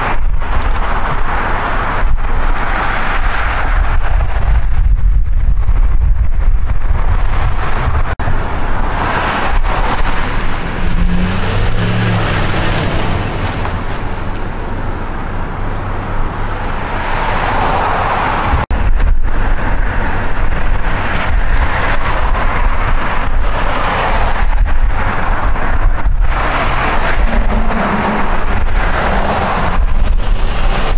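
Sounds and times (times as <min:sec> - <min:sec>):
gusty wind on microphone: 0:00.0 - 0:14.4, 0:16.7 - 0:30.9
car passing: 0:07.1 - 0:18.7, 0:19.8 - 0:30.9.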